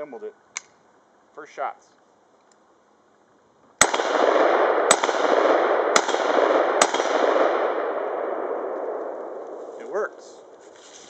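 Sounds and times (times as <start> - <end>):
rifle shots echoing: 3.8 - 10.6.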